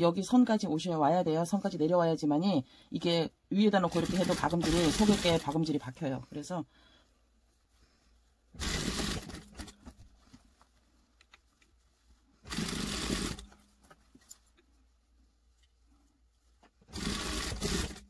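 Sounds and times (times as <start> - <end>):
fabric rustling: 3.8 - 18.0
sewing machine stitching: 3.9 - 5.6, 8.6 - 9.8, 12.4 - 13.6, 16.9 - 18.0.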